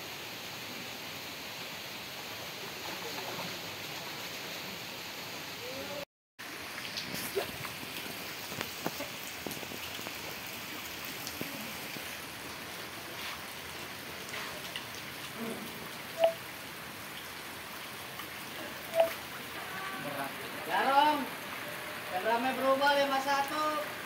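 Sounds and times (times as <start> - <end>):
heavy rain hissing: 0.0 - 24.0
raindrops ticking close by: 6.4 - 24.0.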